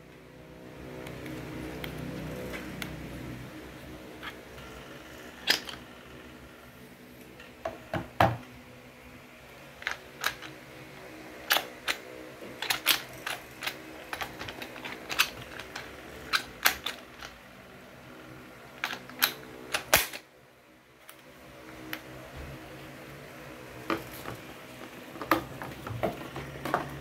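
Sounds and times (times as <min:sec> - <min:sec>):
rotary hammer clicks and snaps: 0:05.4 - 0:05.8, 0:09.8 - 0:10.6, 0:11.5 - 0:12.0, 0:12.6 - 0:17.4, 0:18.8 - 0:20.2.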